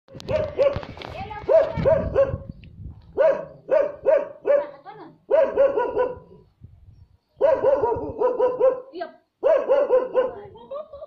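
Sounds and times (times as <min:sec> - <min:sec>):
dog barking: 0:00.1 - 0:00.8, 0:01.5 - 0:02.5, 0:03.2 - 0:06.4, 0:07.4 - 0:10.5.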